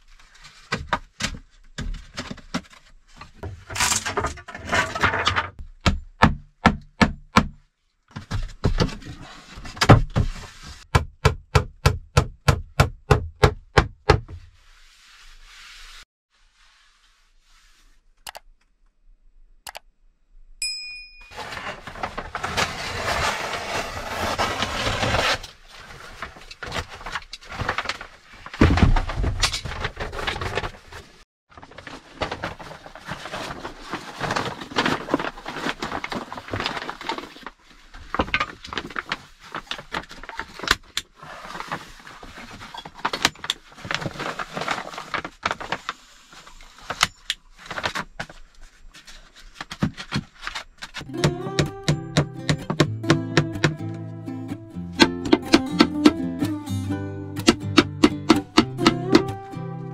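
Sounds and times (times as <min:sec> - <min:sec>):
sharp clicks: 0:18.2 - 0:18.7
foil sheet crinkling: 0:21.4 - 0:49.6.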